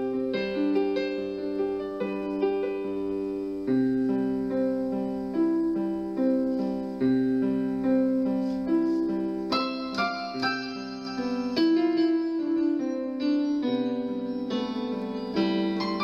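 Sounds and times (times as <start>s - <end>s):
slow solo piano: 0.0s - 16.0s.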